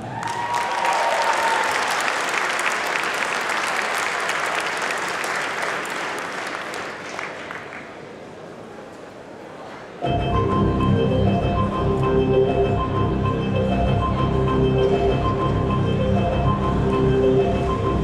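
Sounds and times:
audience applauding: 0.0 - 8.2
held musical note: 10.0 - 18.0.

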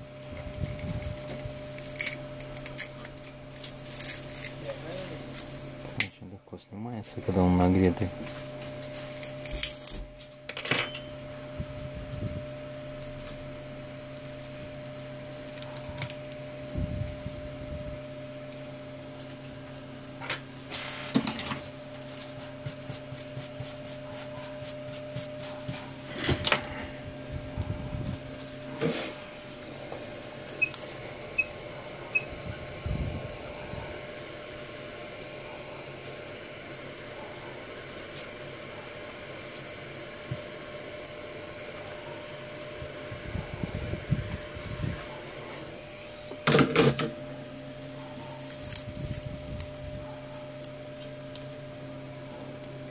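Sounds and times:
hot air station hissing: 28.6 - 47.4.

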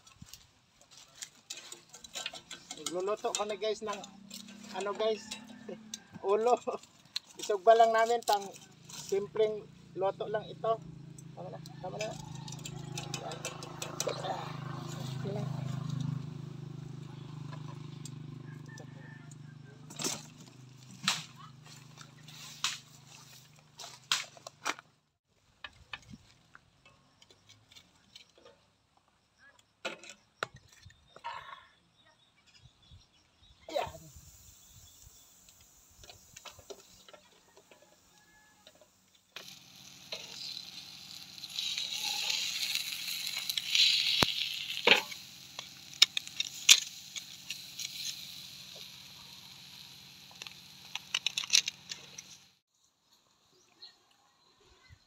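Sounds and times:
clinks and knocks of grill: 1.0 - 9.1, 11.1 - 16.2, 19.8 - 22.0, 29.8 - 30.9, 36.0 - 48.9, 50.3 - 52.4
fish sizzling and crackling: 12.0 - 18.4, 34.2 - 52.6.

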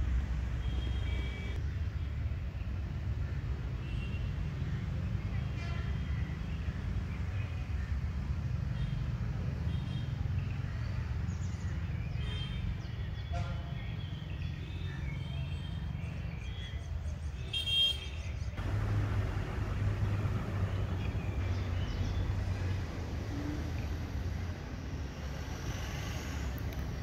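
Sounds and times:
road traffic rumble: 0.0 - 27.0
vehicle horn toot: 0.6 - 1.6.

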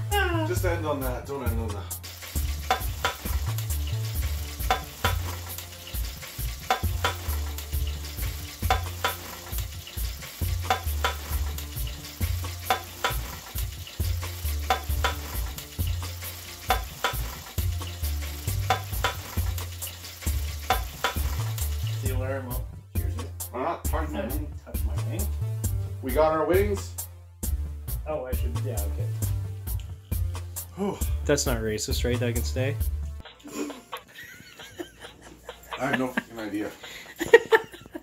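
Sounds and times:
background music with bass line: 0.0 - 33.9
oil sizzling in a deep fryer: 0.6 - 22.7.

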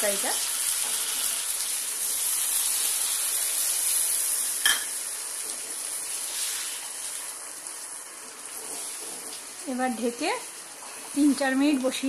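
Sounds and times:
curry sizzling in a hot pan: 0.0 - 12.0.

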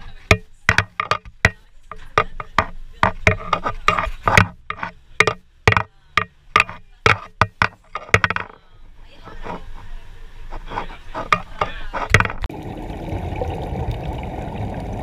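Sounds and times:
sharp knocks and clicks: 0.3 - 8.6, 11.2 - 12.5.

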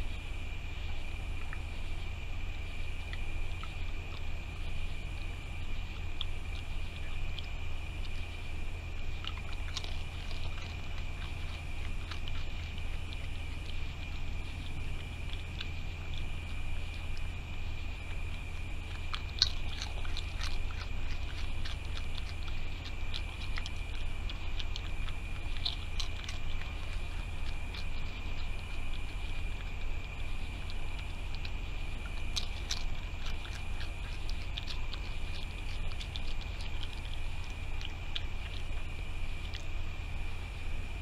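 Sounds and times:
raccoon chewing and crunching: 0.0 - 41.0.

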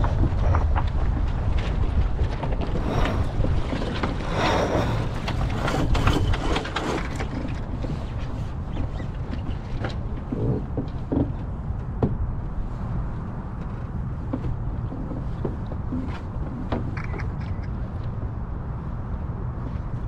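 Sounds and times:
wind buffeting microphone: 0.0 - 20.0
water rushing along hull: 1.4 - 12.8.

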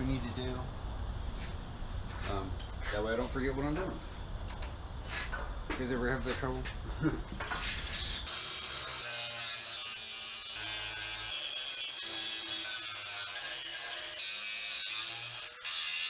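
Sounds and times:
electric grinder grinding steel: 8.0 - 16.0.

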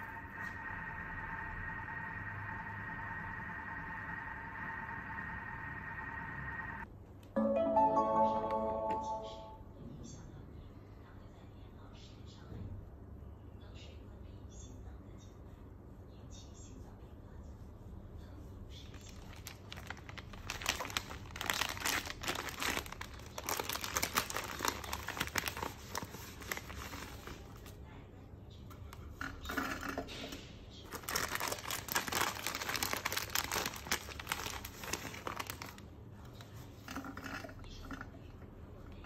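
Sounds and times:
plastic packet crinkling: 18.9 - 27.7, 30.9 - 35.9.

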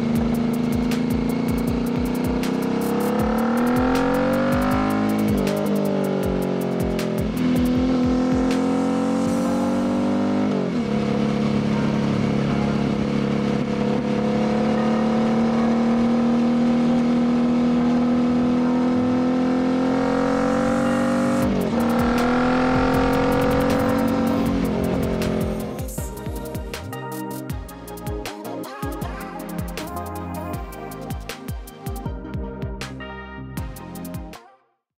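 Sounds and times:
motorcycle engine accelerating: 0.0 - 27.0.

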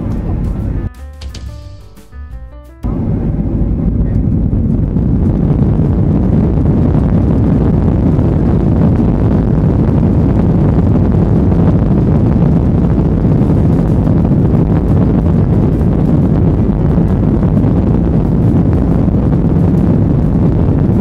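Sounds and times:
jet engine rumble: 0.0 - 1.6, 2.8 - 21.0
rushing airflow: 2.8 - 21.0.

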